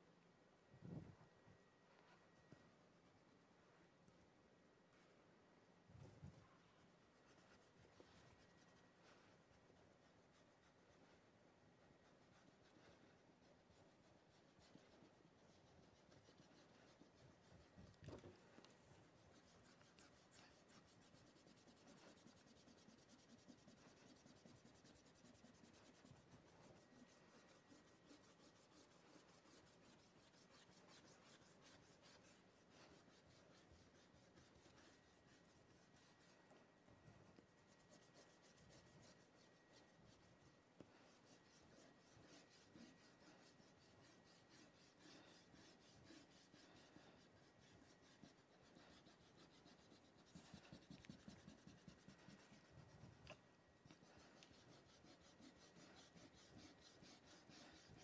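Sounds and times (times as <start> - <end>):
chalk scratching on board: 12.0 - 17.8, 19.0 - 36.4, 37.6 - 53.2, 53.9 - 58.0.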